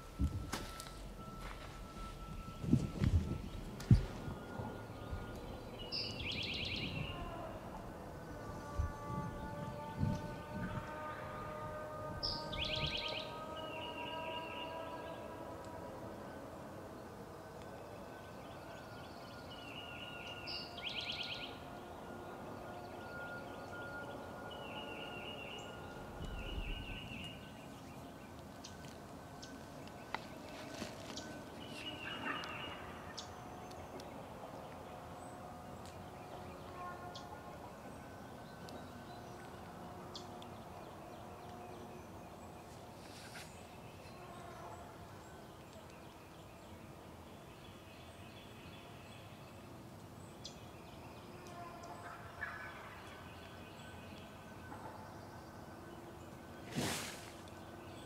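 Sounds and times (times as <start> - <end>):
faint songbird chirps: 17.4 - 58.0.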